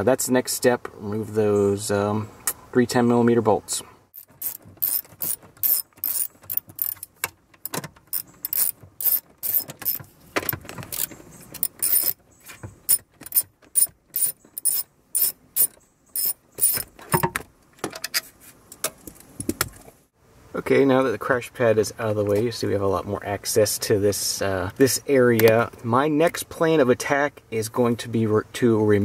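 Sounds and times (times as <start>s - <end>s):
socket ratchet clicking: 4.2s - 12.2s, 12.9s - 16.8s.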